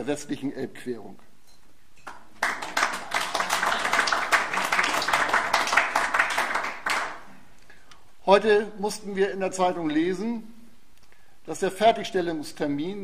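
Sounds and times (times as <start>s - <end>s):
audience clapping: 2.0s - 7.4s.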